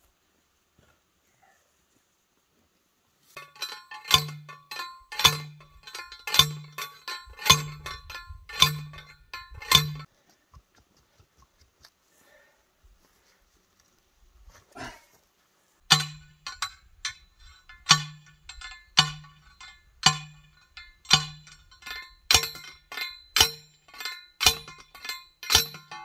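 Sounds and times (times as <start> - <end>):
post driver clanging on metal: 3.4 - 10.1, 15.9 - 26.0.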